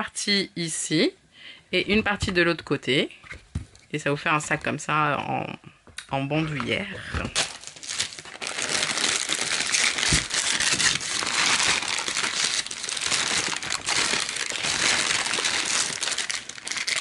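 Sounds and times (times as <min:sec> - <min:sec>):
tissue paper crinkling: 0:07.4 - 0:17.0.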